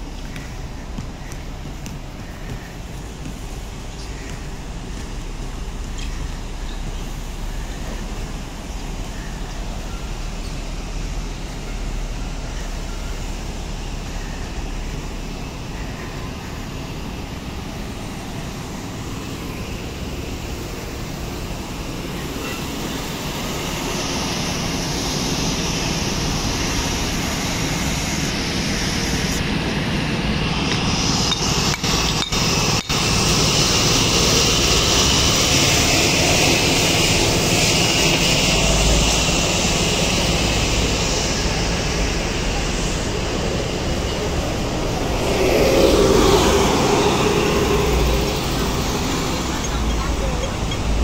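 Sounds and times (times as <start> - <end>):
bright hiss: 0.0 - 51.0
city street traffic: 0.0 - 51.0.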